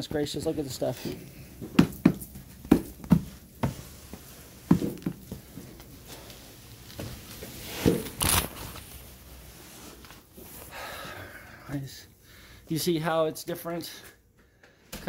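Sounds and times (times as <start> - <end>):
sharp knocks and thumps: 1.6 - 3.9.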